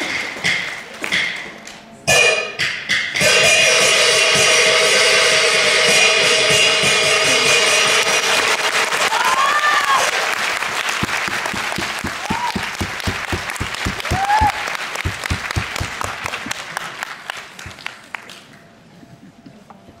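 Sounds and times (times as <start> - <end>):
audience applauding: 7.8 - 18.6
shouts of approval: 9.0 - 10.2, 12.2 - 12.8, 14.0 - 14.7.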